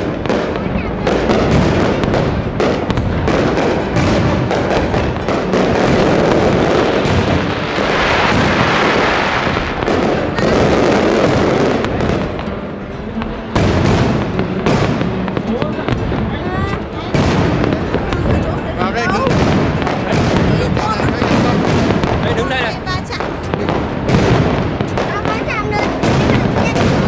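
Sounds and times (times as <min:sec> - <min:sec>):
fireworks crackle: 0:00.0 - 0:27.0
fireworks shells bursting: 0:00.0 - 0:27.0.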